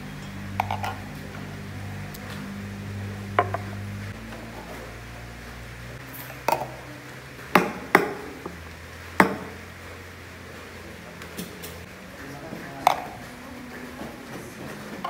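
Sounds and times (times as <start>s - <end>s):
low steady hum: 0.0s - 15.0s
ceramic cups clinking on counter: 0.2s - 1.1s.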